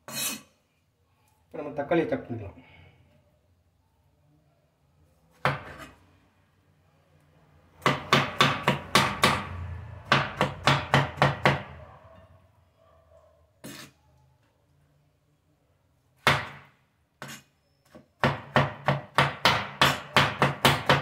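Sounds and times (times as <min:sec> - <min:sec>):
knife chopping on wooden board: 0:05.4 - 0:06.0, 0:07.8 - 0:09.5, 0:10.1 - 0:11.7, 0:16.2 - 0:21.0.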